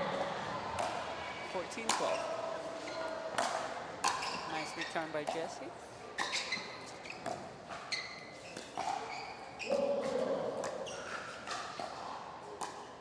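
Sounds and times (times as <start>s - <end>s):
crowd voices: 0.0s - 4.9s
paddles striking plastic ball: 1.7s - 2.1s
shoe squeaks on court: 4.1s - 5.2s, 6.1s - 11.8s.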